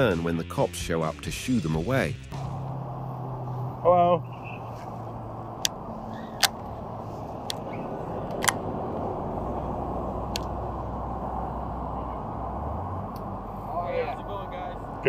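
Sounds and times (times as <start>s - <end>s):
highway traffic rush: 0.0s - 0.3s, 0.9s - 15.0s
low rumble: 1.5s - 15.0s
sharp clicks: 7.4s - 8.6s, 10.3s - 10.5s.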